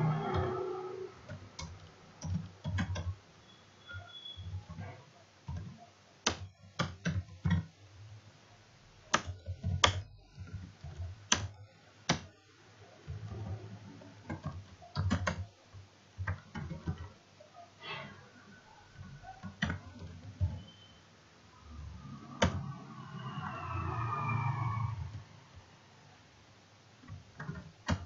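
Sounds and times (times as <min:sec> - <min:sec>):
keyboard typing clicks: 0:01.2 - 0:03.2, 0:09.1 - 0:12.4, 0:14.2 - 0:15.5, 0:27.1 - 0:28.0.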